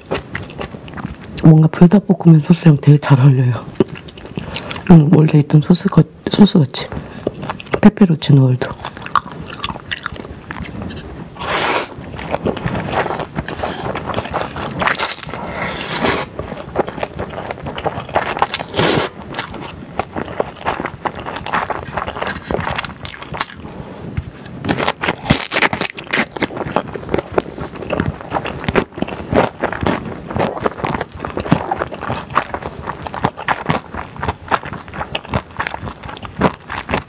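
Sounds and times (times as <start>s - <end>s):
wet chewing and lip smacks: 0.0s - 1.5s, 3.7s - 5.0s, 6.9s - 7.8s, 8.6s - 37.0s
slurping noodles: 8.8s - 37.0s.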